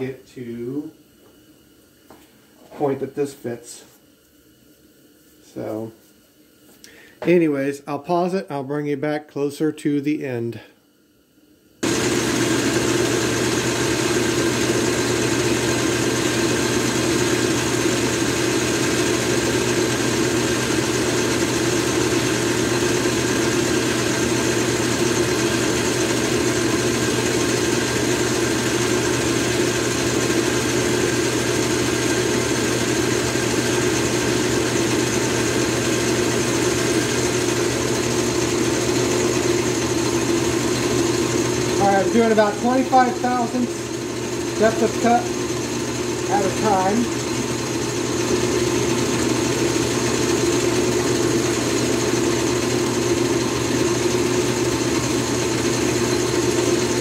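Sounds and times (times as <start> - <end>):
metal lathe humming: 11.8 - 57.0.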